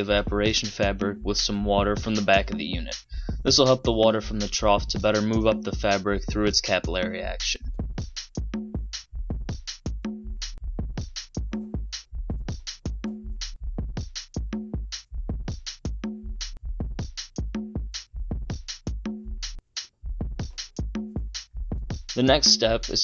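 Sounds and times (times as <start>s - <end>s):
drum machine beat: 0.0s - 23.0s
electronic music: 22.1s - 23.0s.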